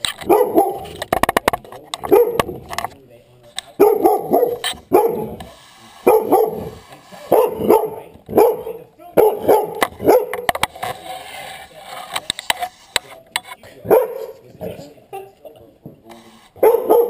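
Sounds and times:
dog barking: 0.2s - 1.0s, 2.0s - 2.6s, 3.8s - 10.5s, 13.8s - 14.4s, 16.6s - 17.0s.

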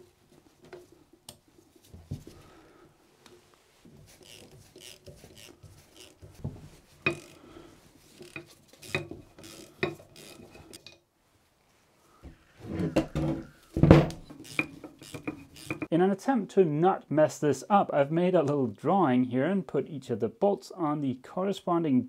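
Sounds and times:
ratchet wrench and bolts clinking: 8.2s - 11.0s, 14.4s - 15.9s.

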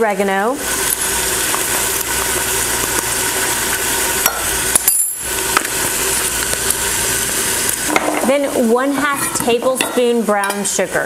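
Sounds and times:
meat sizzling: 0.0s - 11.0s.

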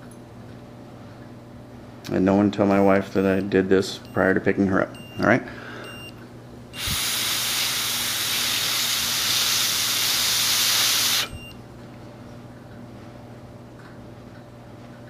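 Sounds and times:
breath blown through mouthpiece: 6.8s - 11.4s.

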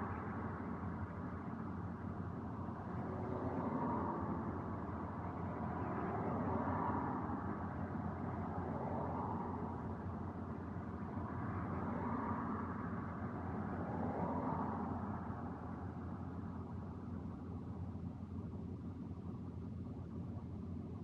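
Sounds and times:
city traffic hum: 0.0s - 21.0s
cars passing: 2.8s - 10.1s, 11.0s - 16.0s.

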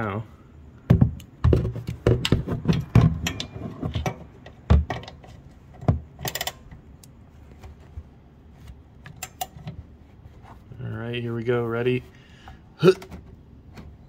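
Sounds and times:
metal clicks and knocks: 0.9s - 7.2s, 9.0s - 9.8s
socket ratchet rattling: 6.1s - 6.7s.

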